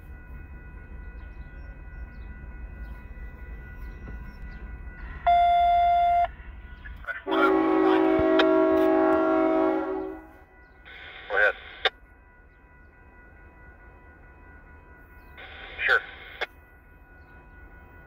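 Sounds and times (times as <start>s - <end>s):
crossing bell ringing: 0.0s - 18.0s
locomotive horn blasts: 7.2s - 10.5s.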